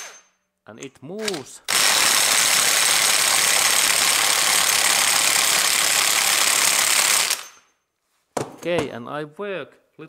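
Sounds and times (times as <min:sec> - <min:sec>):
impact wrench hammering: 0:00.0 - 0:00.3, 0:01.2 - 0:07.7.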